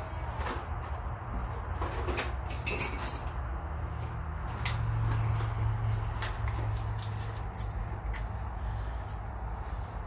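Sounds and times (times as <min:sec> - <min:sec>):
metal parts clicking and knocking: 0:00.3 - 0:03.6.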